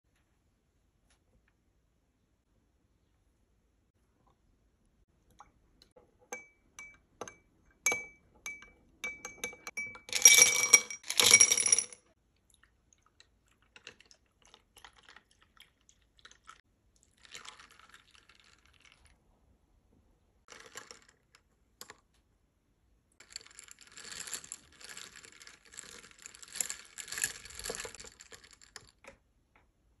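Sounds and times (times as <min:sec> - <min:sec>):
spoon stirring ice in glass: 0:06.3 - 0:11.8, 0:23.2 - 0:28.9
ice cubes clinking into glass: 0:09.0 - 0:12.0
milk pouring: 0:12.4 - 0:19.2.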